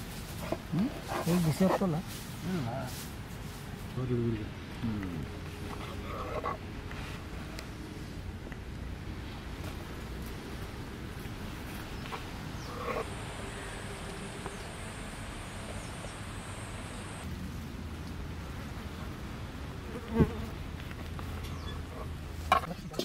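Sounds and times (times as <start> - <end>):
insects buzzing: 11.7 - 17.3
high insect drone: 12.5 - 17.3.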